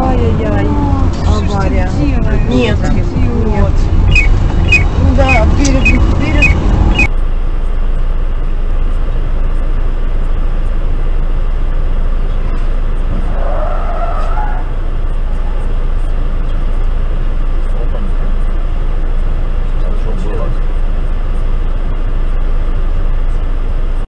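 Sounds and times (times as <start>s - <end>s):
car interior rumble: 0.0s - 24.0s
tyre screech: 13.1s - 14.8s.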